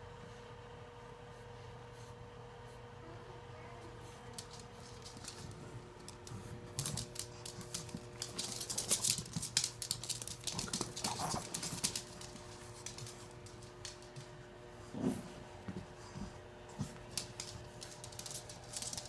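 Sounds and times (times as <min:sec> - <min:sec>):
dog claws clicking on hardwood floor: 0:04.3 - 0:14.5, 0:15.7 - 0:19.0.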